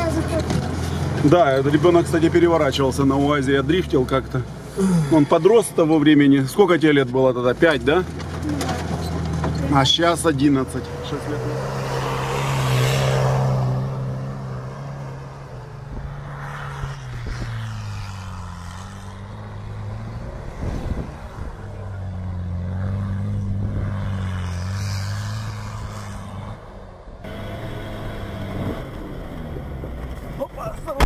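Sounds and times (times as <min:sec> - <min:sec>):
off-road vehicle engine revving: 0:00.0 - 0:31.0
wheels spinning through snow: 0:15.8 - 0:22.8, 0:23.4 - 0:26.4, 0:27.3 - 0:31.0.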